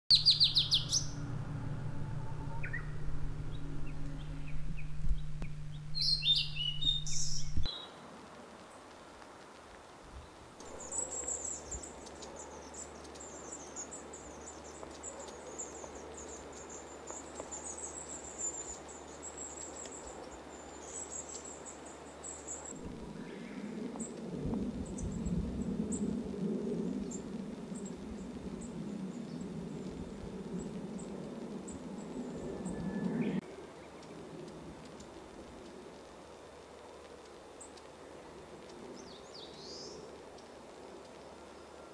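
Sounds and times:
faint low hum: 0:00.1 - 0:07.7, 0:22.8 - 0:23.4
high continuous chirring: 0:00.1 - 0:07.7, 0:22.8 - 0:23.3
low rushing noise: 0:00.1 - 0:07.7
scattered high ticks: 0:00.1 - 0:07.7.

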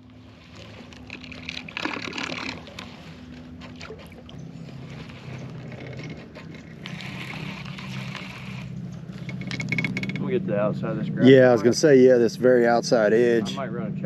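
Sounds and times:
electric trolling motor humming: 0:00.0 - 0:14.0.

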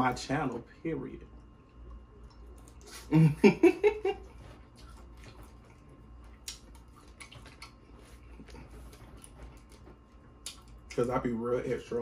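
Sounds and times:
chewing and mouth clicks: 0:01.3 - 0:03.1, 0:04.3 - 0:11.2.

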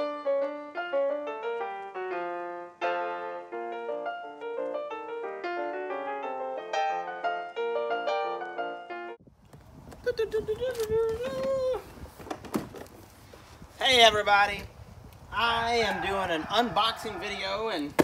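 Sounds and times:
piano music: 0:00.0 - 0:09.2.

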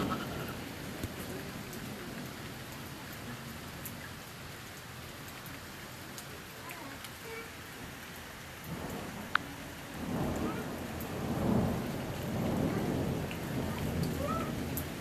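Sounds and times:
rain hiss: 0:00.0 - 0:15.0
rolling thunder: 0:10.0 - 0:15.0.

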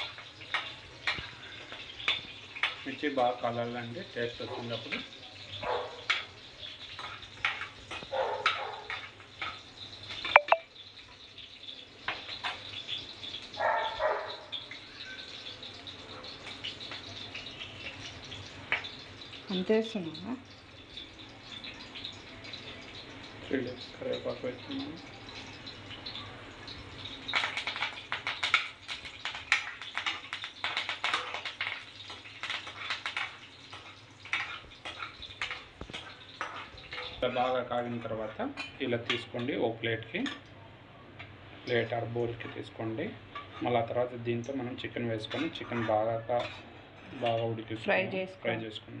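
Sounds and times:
steel spoon scraping a pan: 0:00.0 - 0:03.2, 0:06.0 - 0:10.4, 0:27.0 - 0:39.6, 0:43.3 - 0:43.9, 0:45.2 - 0:47.5
chillies sizzling in hot oil: 0:00.0 - 0:49.0
spoon clinking on pan: 0:10.2 - 0:10.6, 0:29.7 - 0:37.5.

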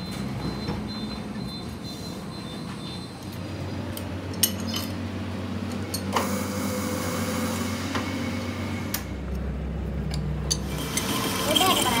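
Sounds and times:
lathe turning deep hum: 0:05.0 - 0:12.0.

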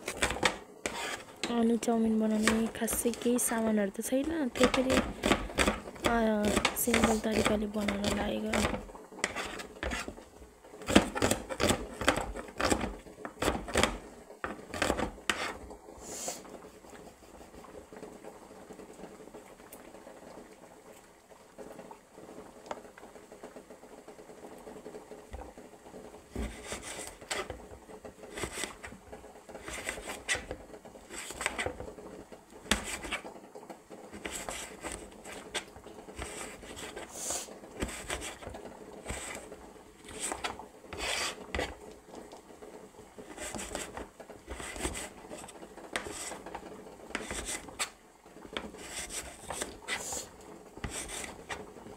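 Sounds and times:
knife chopping onions on board: 0:04.2 - 0:10.1, 0:10.9 - 0:15.6.

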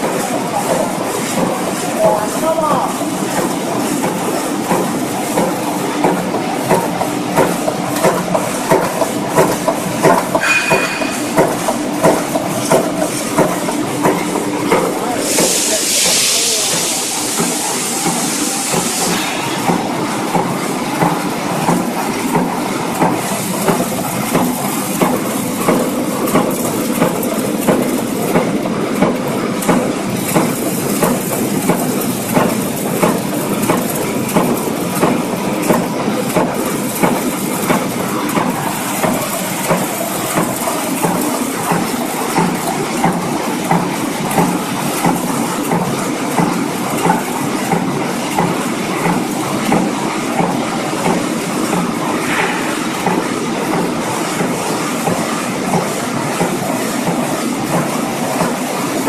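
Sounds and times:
press clattering: 0:06.7 - 0:15.0
hiss: 0:15.2 - 0:19.8, 0:52.2 - 0:53.0.

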